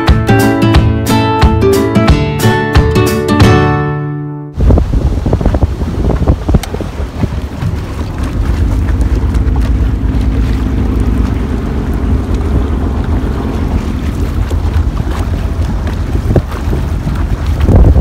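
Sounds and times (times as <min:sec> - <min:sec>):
boat engine drone: 0:04.6 - 0:18.0
wind buffeting microphone: 0:04.6 - 0:18.0.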